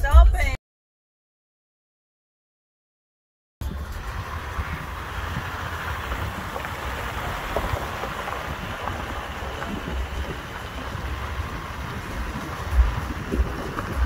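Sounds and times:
vehicle rolling on gravel: 3.6s - 14.0s
wind buffeting microphone: 3.6s - 14.0s.

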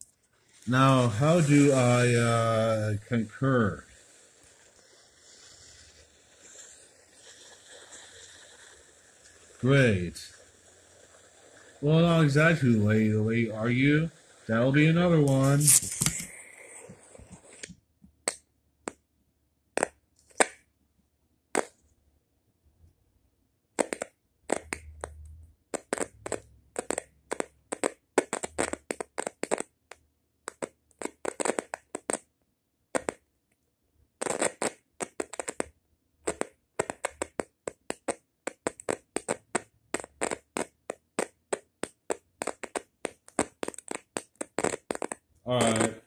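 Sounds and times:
sharp clicks and crackles: 34.2s - 46.0s.

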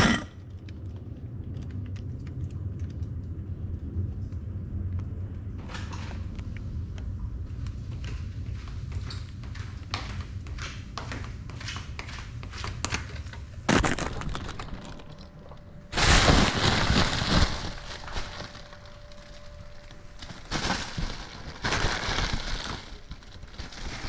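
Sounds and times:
faint drone motor hum: 0.0s - 24.0s.

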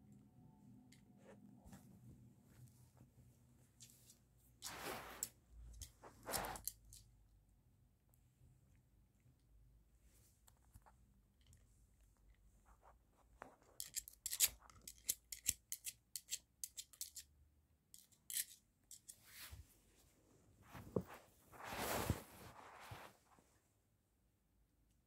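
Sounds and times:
rustling swish: 4.6s - 5.4s, 20.6s - 23.4s.

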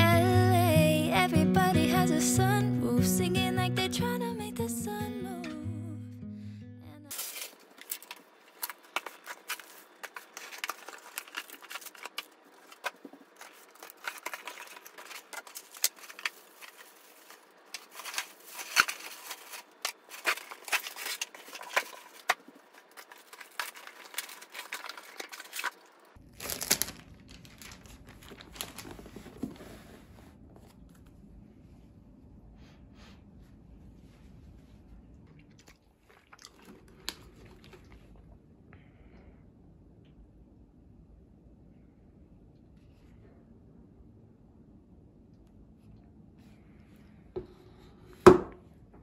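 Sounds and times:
packaging crinkling and rustling: 7.1s - 31.0s.

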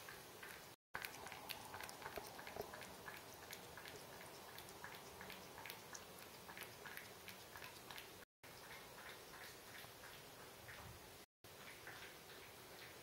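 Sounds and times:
cat chewing wet food: 0.1s - 10.8s.

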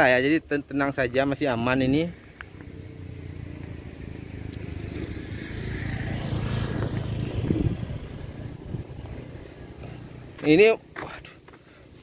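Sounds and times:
vehicle engine passing by: 1.6s - 10.6s.

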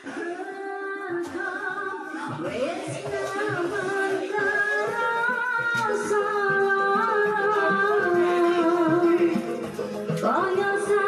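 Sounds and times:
instrumental backing track: 2.4s - 11.0s.

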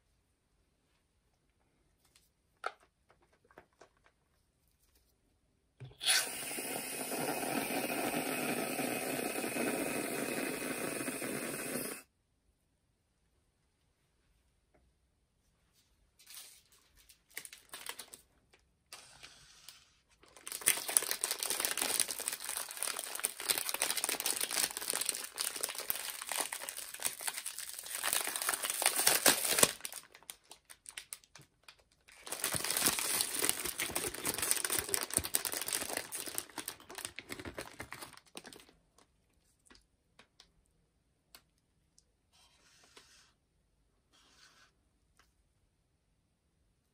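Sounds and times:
plastic bag crinkling: 16.4s - 18.4s, 20.2s - 39.8s.

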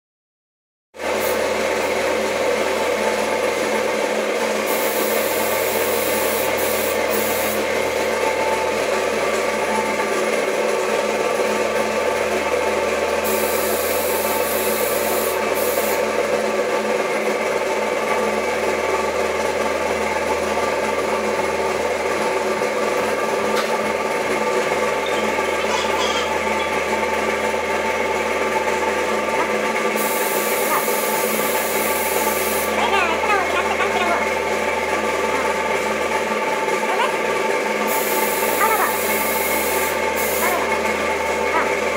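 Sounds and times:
air compressor drone: 1.0s - 41.9s
paint spray gun hissing: 1.2s - 1.5s, 4.6s - 7.7s, 13.2s - 16.1s, 29.5s - 32.9s, 37.8s - 41.4s.

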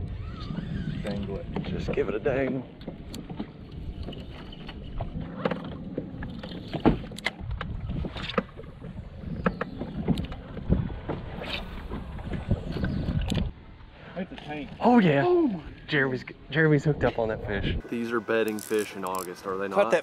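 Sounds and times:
water lapping against boat hull: 0.0s - 15.2s.

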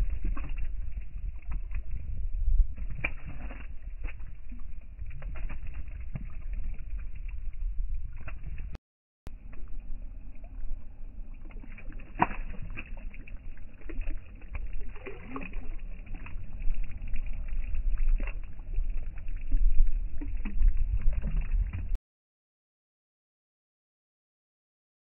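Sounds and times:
wind rumble on microphone: 0.0s - 22.0s.

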